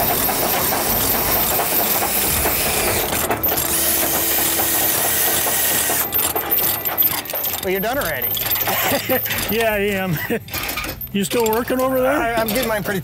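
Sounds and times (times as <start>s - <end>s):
cordless drill running under load: 0.0s - 9.2s
ratchet chain binder clicking: 0.0s - 13.0s.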